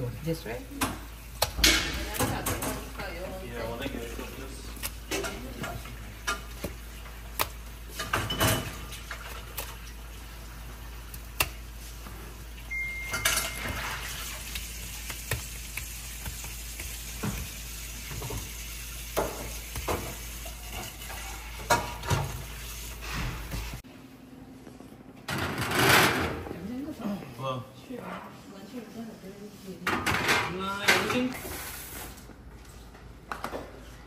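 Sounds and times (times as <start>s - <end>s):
dishes and utensils clinking: 0.8s - 3.0s, 7.9s - 9.4s, 12.7s - 14.4s, 19.2s - 22.4s, 29.8s - 31.4s
short high beep: 12.7s - 13.8s.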